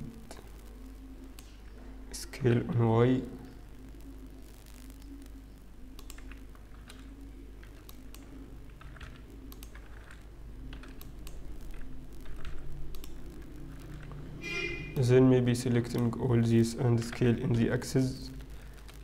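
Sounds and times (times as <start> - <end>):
low steady hum: 0.0 - 19.0
keyboard keys clicking: 6.0 - 14.2.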